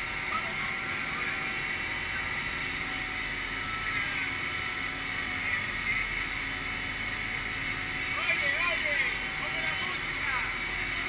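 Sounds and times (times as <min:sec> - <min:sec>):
boat engine running: 0:00.0 - 0:11.0
water rushing along hull: 0:00.0 - 0:11.0.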